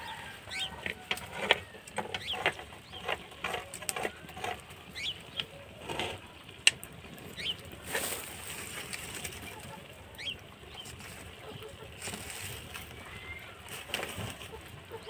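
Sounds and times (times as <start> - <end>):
fire crackling and popping: 0.6 - 15.0
bird chirps: 4.9 - 5.5.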